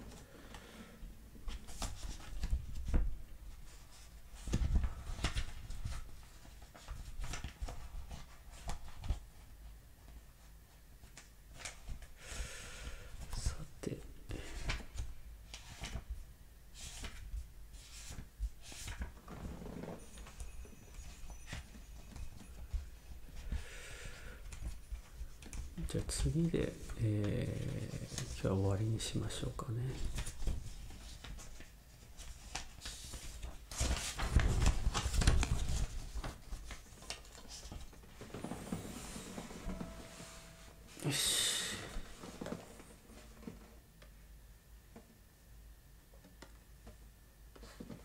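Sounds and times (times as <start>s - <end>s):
soft handling knocks and rustles: 17.2s - 23.6s, 29.9s - 40.7s.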